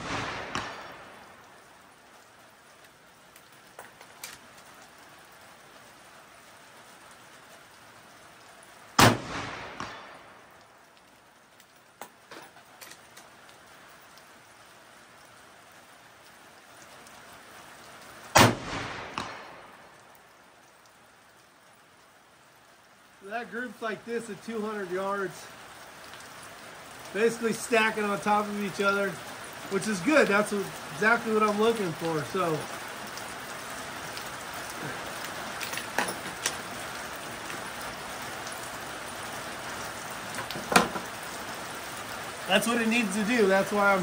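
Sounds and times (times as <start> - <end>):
rifle shots with echo: 0.0 - 1.4, 9.0 - 10.5, 18.4 - 20.0
rain hissing: 0.0 - 44.0.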